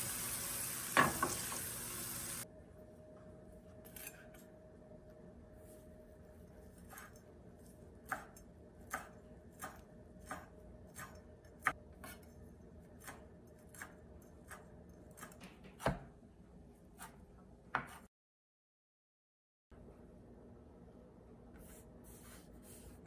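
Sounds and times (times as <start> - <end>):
knife chopping on wooden board: 8.0 - 12.2, 15.2 - 16.1, 17.0 - 18.1.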